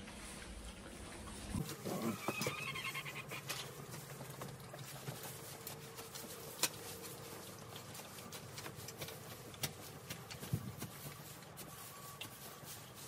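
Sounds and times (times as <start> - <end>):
pitchfork rustling hay: 4.8 - 13.0.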